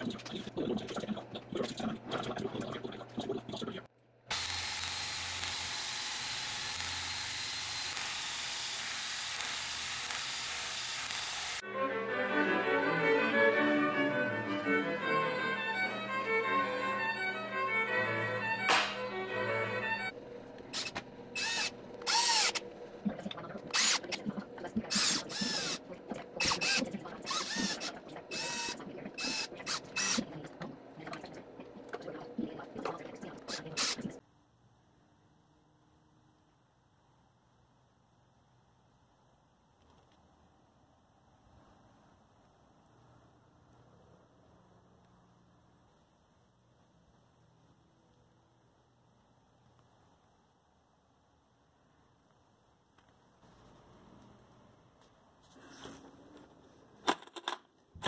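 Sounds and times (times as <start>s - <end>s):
drill spinning wire wheel on metal: 4.3s - 11.6s, 20.7s - 22.6s, 23.7s - 24.1s, 24.9s - 25.8s, 26.4s - 30.2s.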